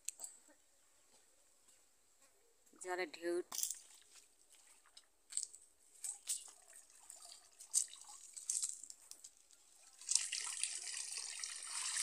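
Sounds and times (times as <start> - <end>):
water dripping and splashing: 3.6 - 12.0.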